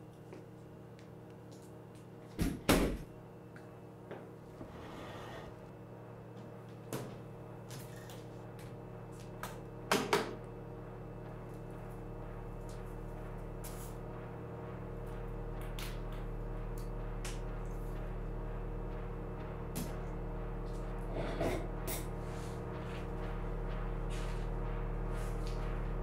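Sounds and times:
low drone of held tones: 0:08.4 - 0:26.0.

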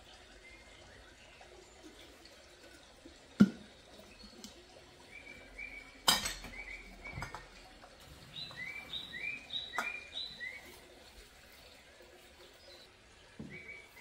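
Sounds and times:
kitchenware clinking: 0:06.0 - 0:07.6
small bird chirping: 0:08.3 - 0:10.8.

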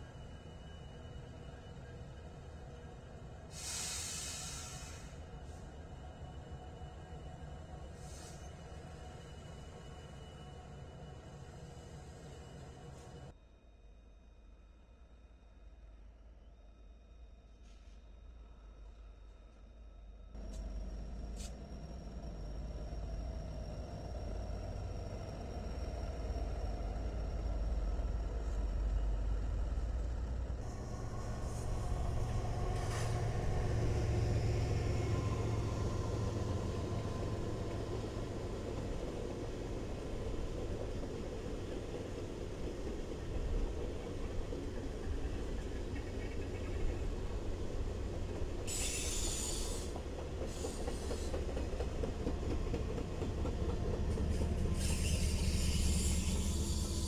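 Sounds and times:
locomotive engine rumble: 0:20.4 - 0:57.0.

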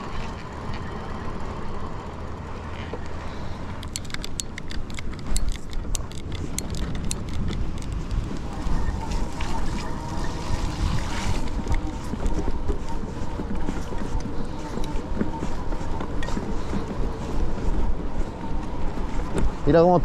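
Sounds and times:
sharp clicks and rattles: 0:02.6 - 0:17.9
wind buffeting microphone: 0:04.6 - 0:20.0.

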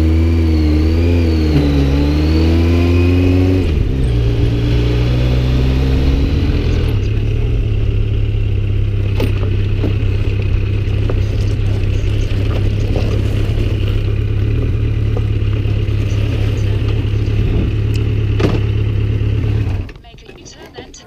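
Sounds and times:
motorcycle engine idling: 0:03.7 - 0:20.6
tyres rolling on gravel: 0:07.1 - 0:19.2.

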